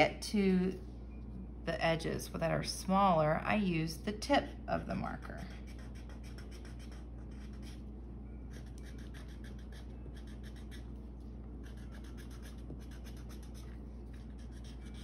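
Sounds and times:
steady low hum: 0:00.0 - 0:15.0
marker scratching across paper: 0:05.5 - 0:07.8, 0:08.5 - 0:11.0, 0:11.6 - 0:15.0.

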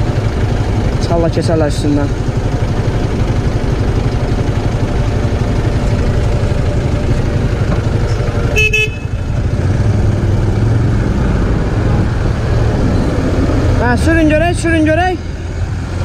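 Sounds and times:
engines rumbling in traffic: 0:00.0 - 0:16.0
vehicle horn toot: 0:08.5 - 0:09.2.

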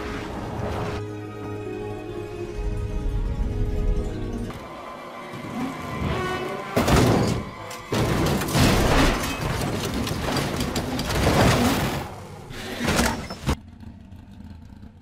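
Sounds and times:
film music: 0:00.0 - 0:11.1
car crash: 0:05.4 - 0:13.6.

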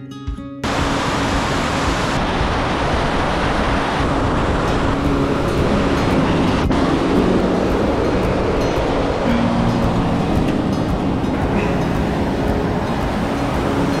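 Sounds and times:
water rushing over dam spillway: 0:00.6 - 0:14.0.

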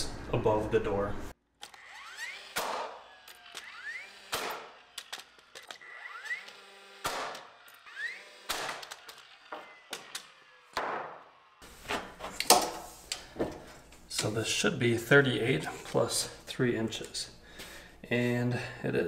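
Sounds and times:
nailer motor whine: 0:01.6 - 0:11.6
nail gun shots: 0:02.5 - 0:03.0, 0:04.3 - 0:05.2, 0:07.0 - 0:07.5, 0:08.4 - 0:09.1.

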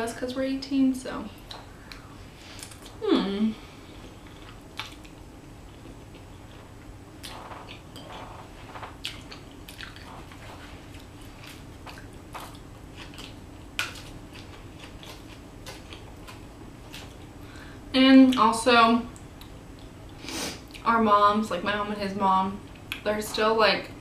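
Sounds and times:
chewing: 0:04.0 - 0:17.3.

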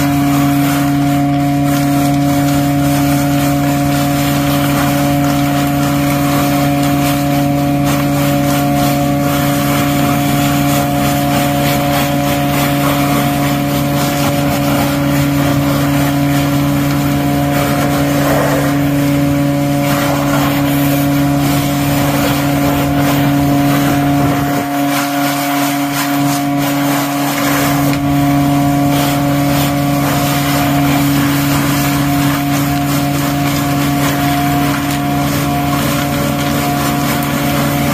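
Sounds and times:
hose sucking water and mud: 0:00.0 - 0:37.9
vacuum excavator humming: 0:00.0 - 0:37.9.

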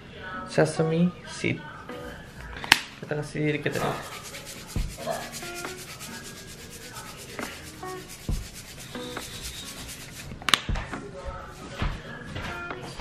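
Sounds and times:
rapid rasping strokes: 0:03.7 - 0:10.5.

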